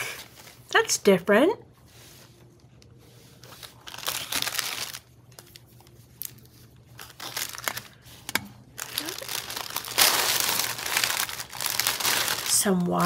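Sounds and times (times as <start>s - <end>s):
plastic bag crinkling: 3.4s - 13.0s.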